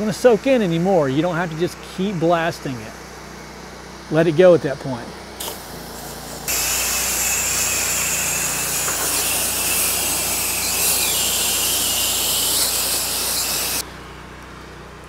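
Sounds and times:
engine humming low: 0.0s - 15.0s
pressure washer water jet hissing: 5.2s - 13.8s.

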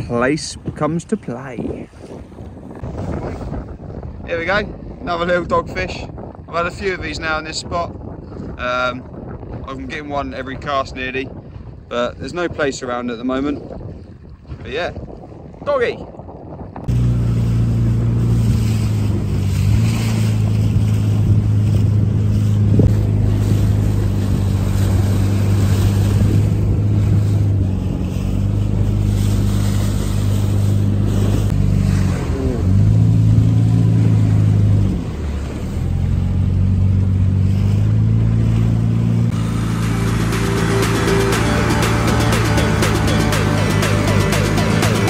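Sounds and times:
wind noise on microphone: 0.0s - 42.4s
outboard motor running: 12.9s - 45.0s.

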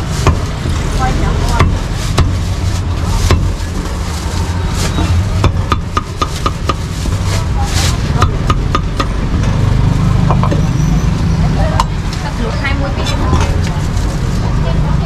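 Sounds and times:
cleaver chopping meat: 1.6s - 2.4s, 3.2s - 3.6s, 5.4s - 6.9s, 8.2s - 9.2s.

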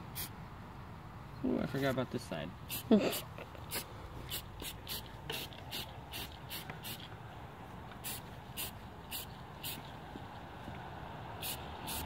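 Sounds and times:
spray paint can hissing: 0.1s - 0.3s, 2.7s - 7.1s, 8.0s - 10.0s, 11.4s - 12.0s.

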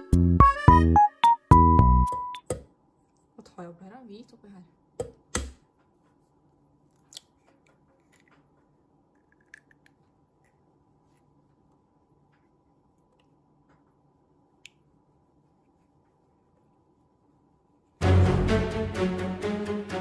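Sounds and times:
faint eggshell clicks: 7.0s - 11.3s.

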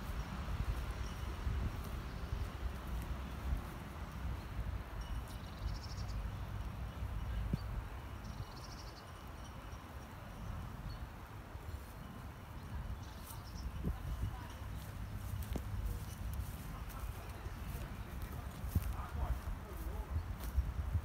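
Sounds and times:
low wind rumble on microphone: 0.0s - 21.0s
small birds trilling: 5.3s - 9.5s.

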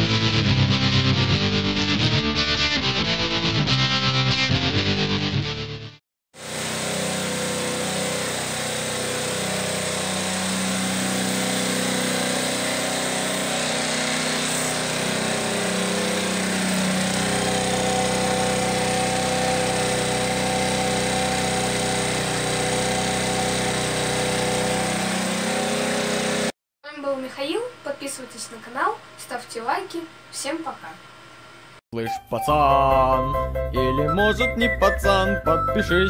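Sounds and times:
scooter engine idling: 6.4s - 26.5s.

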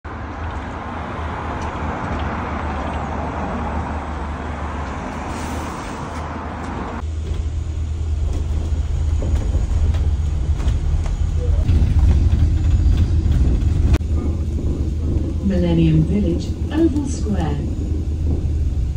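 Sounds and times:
road traffic noise: 0.0s - 18.9s
bus engine hum from inside: 0.1s - 18.9s
bus pulling up: 0.1s - 18.9s.

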